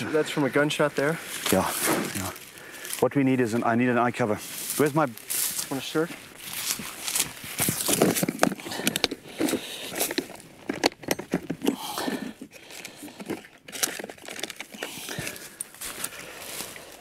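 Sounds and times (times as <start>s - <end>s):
cloth rustling and crinkling: 4.2s - 17.0s.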